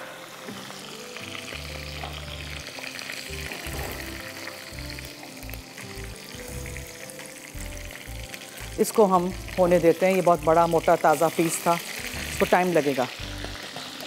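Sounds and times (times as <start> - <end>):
food sizzling in a pan: 0.0 - 14.0.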